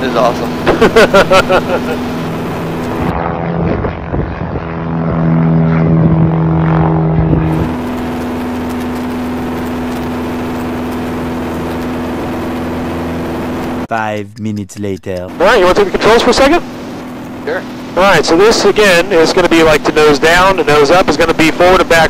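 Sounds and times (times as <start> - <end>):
plane engine drone inside cabin: 0.0 - 14.2, 15.2 - 22.0
propeller plane engine drone: 0.0 - 22.0.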